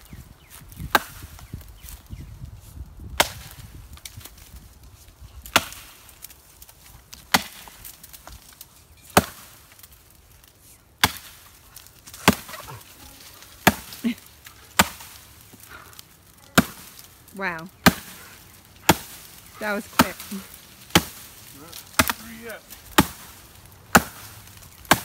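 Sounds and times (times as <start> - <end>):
axe chopping wood: 0.8 - 1.4, 3.2 - 4.4, 5.4 - 6.1, 7.1 - 8.4, 9.1 - 9.9, 11.0 - 12.8, 13.5 - 14.1, 14.7 - 15.7, 16.5 - 17.1, 17.8 - 25.0.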